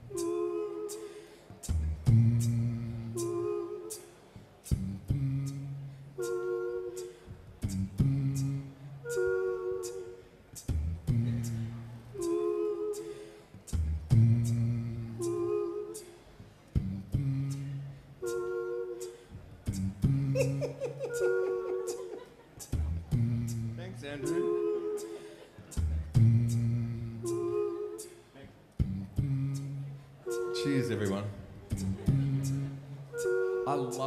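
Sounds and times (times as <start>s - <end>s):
man humming bass line: 0.0s - 28.1s, 28.7s - 34.0s
sung harmonies: 0.0s - 34.0s
mouth percussion clicks: 0.9s - 2.6s, 9.8s - 11.6s, 12.9s - 15.4s.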